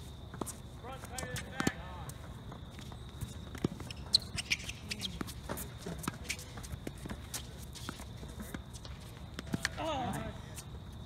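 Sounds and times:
footsteps scuffing: 0.0 - 10.8
tennis ball bouncing on court: 1.2 - 1.8, 3.4 - 10.2
shoe squeaks: 2.8 - 9.2.

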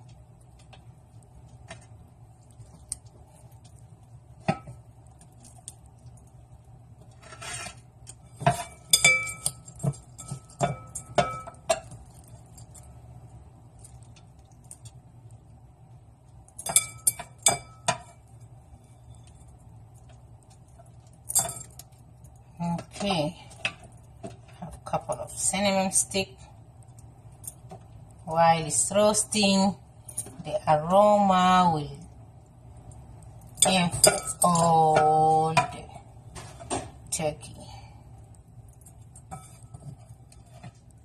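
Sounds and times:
faint steady hum: 0.0 - 41.0
kitchenware clinking on a pan: 7.2 - 12.8, 16.6 - 18.2, 33.6 - 37.0, 39.2 - 40.8.

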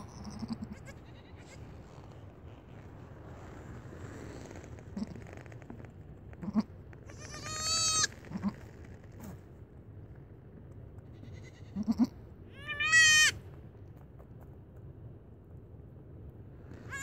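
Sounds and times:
goat kid bleating: 0.0 - 1.8, 4.9 - 5.2, 6.4 - 9.4, 11.0 - 13.4.

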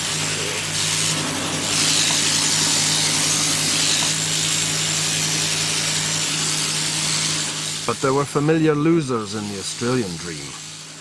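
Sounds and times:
shearing handpiece humming: 0.0 - 11.0.

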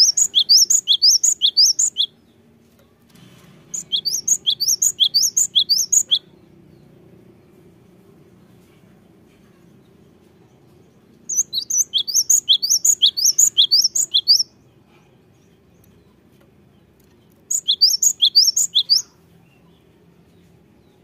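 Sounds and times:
bird singing high notes: 3.7 - 6.3, 11.3 - 14.5, 17.5 - 19.2.

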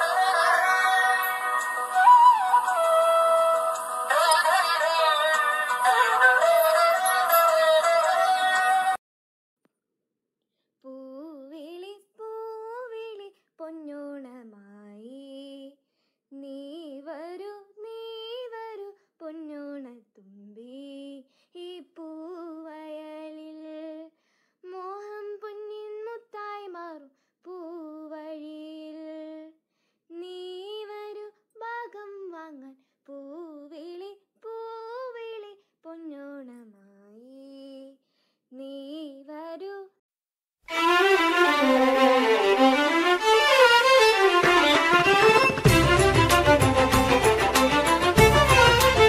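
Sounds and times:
girl singing unaccompanied: 0.0 - 9.0, 10.8 - 24.1, 24.7 - 40.0.

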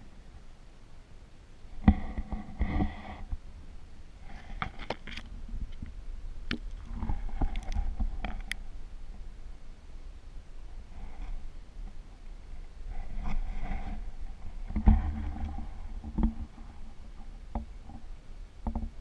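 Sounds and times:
underwater low rumble: 0.0 - 19.0
clicks knocks and scrapes: 6.5 - 8.6.

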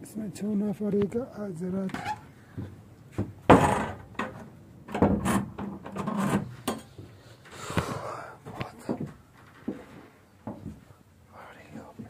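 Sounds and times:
footsteps on wooden stairs: 7.7 - 10.9.

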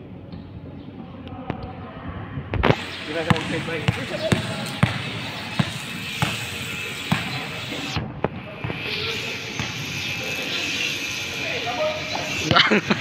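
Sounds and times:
basketball bouncing on wooden floor: 3.2 - 6.5, 7.1 - 7.6.

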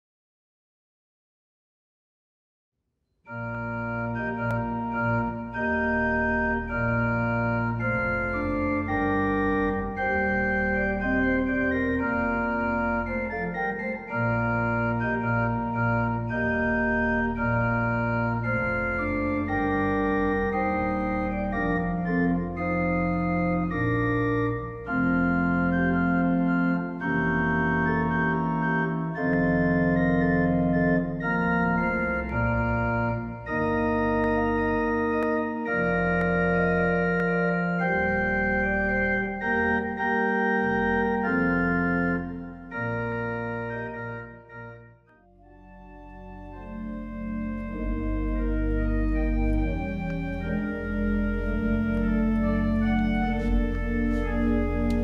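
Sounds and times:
church organ chords: 3.3 - 55.0
deep organ pedal bass notes: 3.3 - 55.0.

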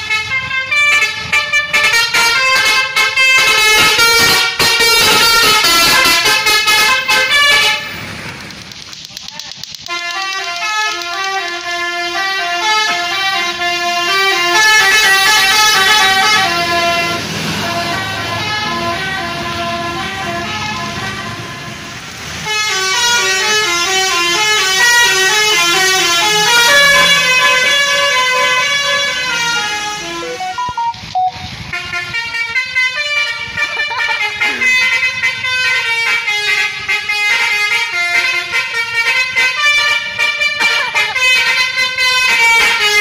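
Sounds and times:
multi-tone bus horn tune: 0.0 - 8.1, 9.8 - 43.0.

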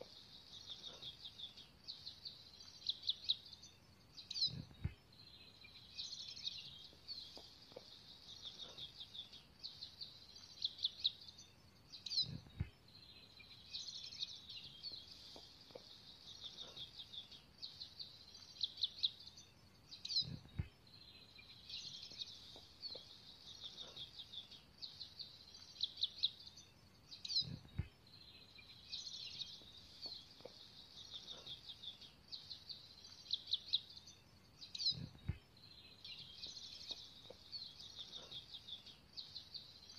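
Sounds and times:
small birds chirping: 0.0 - 39.9
soft low thump: 35.2 - 35.5.

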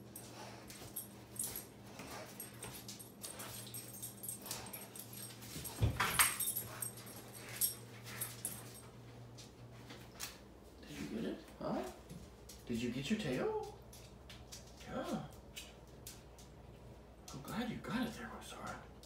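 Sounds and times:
dog claws clicking on tiles: 13.2 - 17.5.

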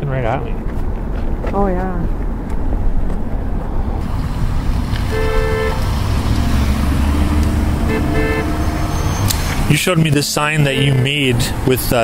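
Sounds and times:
road traffic rumble: 0.0 - 12.0
car horn honk: 5.0 - 5.9, 7.7 - 9.5.

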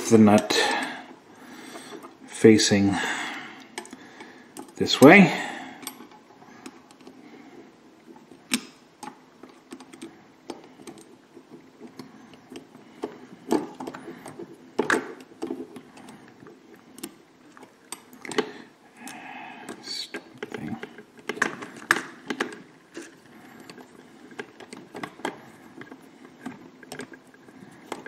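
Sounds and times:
plastic parts rustling: 8.0 - 18.7, 19.6 - 28.0.

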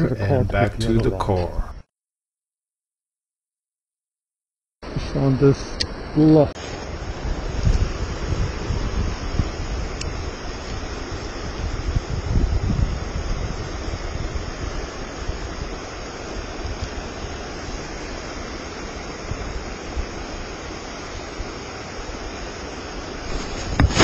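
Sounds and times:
wind buffeting microphone: 6.8 - 24.0.

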